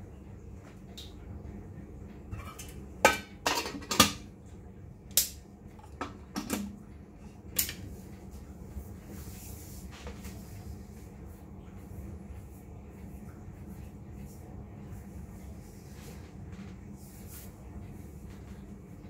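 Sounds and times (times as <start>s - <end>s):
metal kettle knocking and clinking: 3.1s - 4.2s.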